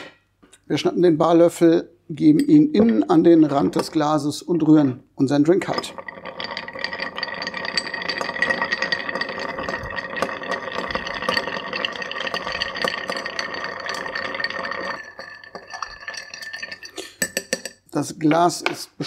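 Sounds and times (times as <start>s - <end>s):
ice clinking in stirred glass: 5.7s - 17.8s.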